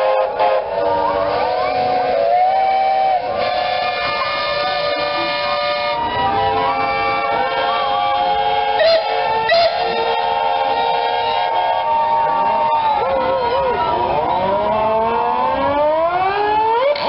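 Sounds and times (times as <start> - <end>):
steam whistles chorus: 0.0 - 12.3.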